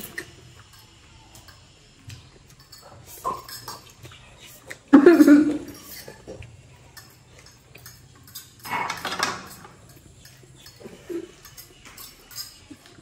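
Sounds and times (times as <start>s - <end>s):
noodles slurped and chewed: 0.0s - 8.8s
forks clinking on plates: 0.0s - 13.0s.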